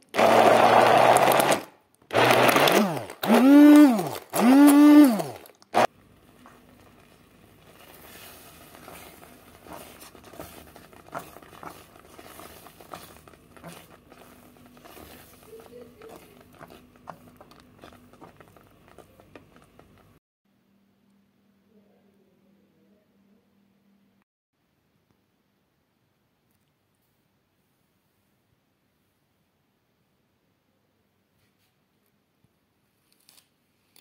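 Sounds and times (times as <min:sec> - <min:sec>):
immersion blender whirring: 0:00.0 - 0:05.9, 0:08.6 - 0:19.5
jam bubbling in a pan: 0:05.4 - 0:20.2.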